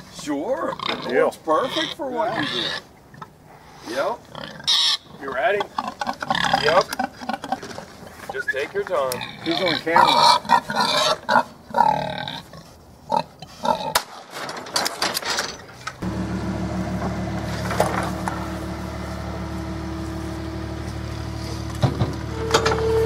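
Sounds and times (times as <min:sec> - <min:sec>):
pigs grunting: 0:00.6 - 0:03.4, 0:04.0 - 0:14.0
steady low hum: 0:16.0 - 0:23.0.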